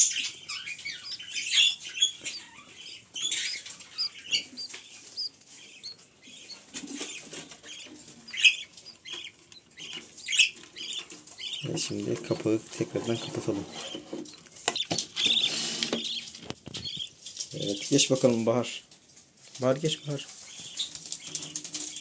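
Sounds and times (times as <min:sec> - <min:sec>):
bird nestlings cheeping: 0:00.0 - 0:11.9, 0:14.7 - 0:17.2.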